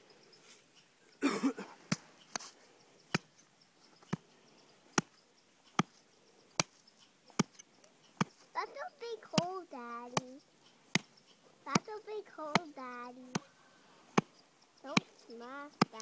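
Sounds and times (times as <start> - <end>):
hand tool chopping packed snow: 5.7 - 7.6, 8.2 - 11.1, 11.7 - 13.5, 14.9 - 16.0.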